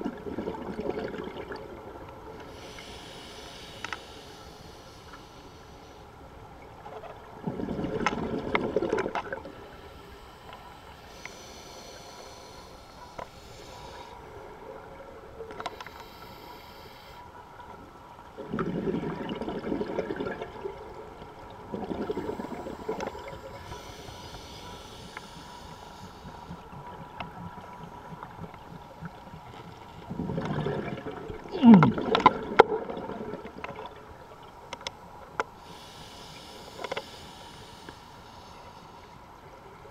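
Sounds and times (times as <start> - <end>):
hissing regulator inhalations: 2.4 - 6.1, 9.6 - 14.3, 15.6 - 17.2, 22.1 - 26.8, 35.6 - 39.2.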